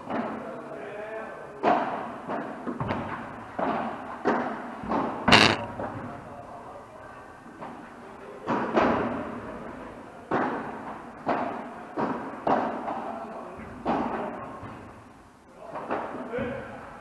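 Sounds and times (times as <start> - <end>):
ball bouncing off court: 5.3 - 5.7.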